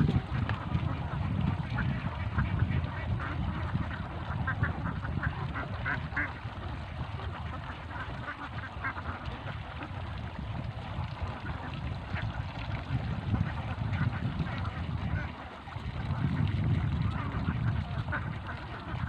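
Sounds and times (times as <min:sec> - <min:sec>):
steady low rumble: 0:00.0 - 0:08.8
ducks quacking: 0:00.0 - 0:10.0, 0:13.4 - 0:19.0.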